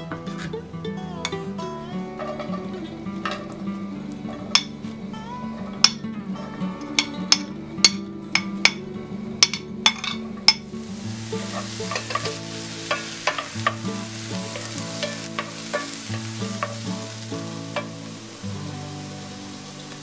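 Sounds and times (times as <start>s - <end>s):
soft background music: 0.0s - 20.0s
onion sizzling in oil: 9.4s - 20.0s.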